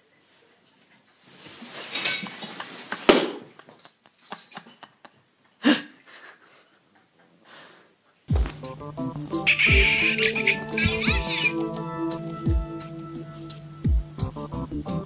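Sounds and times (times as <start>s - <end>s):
rustling scrape: 0.3s - 3.1s.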